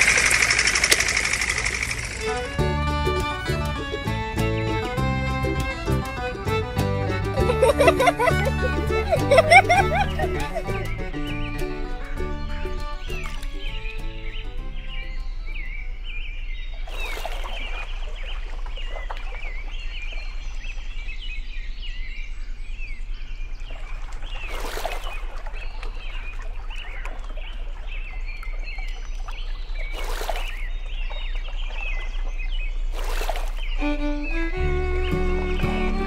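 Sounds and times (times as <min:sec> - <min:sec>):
small birds chirping: 0:00.0 - 0:36.0
water splash: 0:16.8 - 0:20.8, 0:23.6 - 0:33.8.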